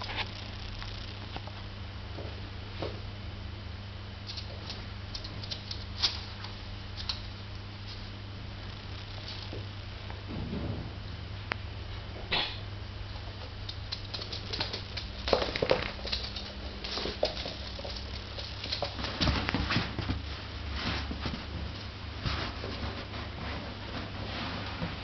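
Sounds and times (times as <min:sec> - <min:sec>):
dog claws on wooden floor: 0:13.4 - 0:20.2.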